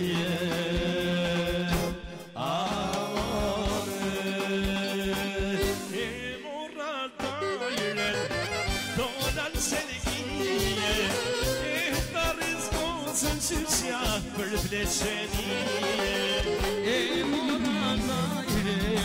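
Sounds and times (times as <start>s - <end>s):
drum kit beat: 0.0s - 6.3s, 7.2s - 19.0s
reed instrument melody with trills: 7.2s - 13.3s, 15.1s - 19.0s.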